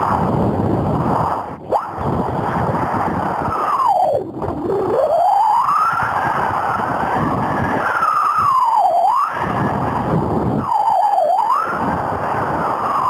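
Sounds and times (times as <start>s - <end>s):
strong wind on microphone: 0.0s - 13.0s
siren-like sliding tone: 1.2s - 2.1s, 3.2s - 13.0s.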